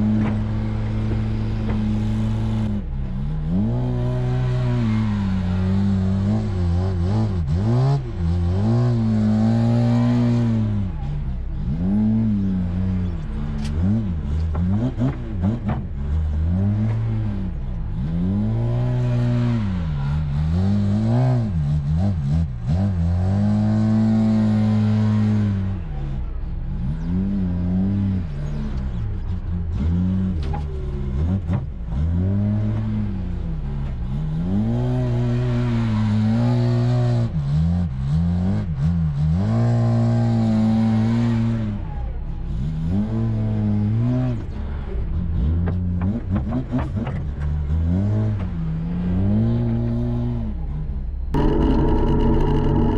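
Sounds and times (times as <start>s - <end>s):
diesel engine revving: 51.3s - 52.9s.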